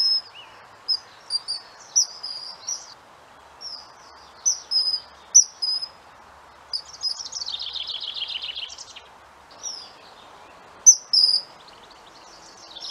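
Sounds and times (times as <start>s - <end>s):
descending bird notes: 0.0s - 3.0s
steady hiss: 0.0s - 12.9s
kingfisher whistled calls: 10.9s - 11.5s.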